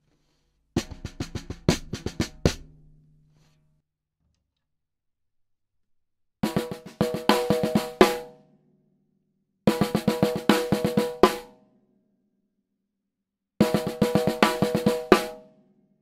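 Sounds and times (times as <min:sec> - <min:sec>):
snare drum played with sticks: 0:00.8 - 0:02.8, 0:06.4 - 0:08.3, 0:09.7 - 0:11.5, 0:13.6 - 0:15.4.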